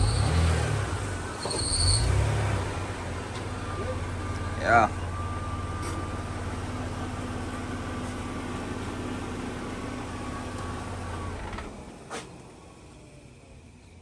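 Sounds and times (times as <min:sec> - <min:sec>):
car engine idling: 0:02.7 - 0:14.0.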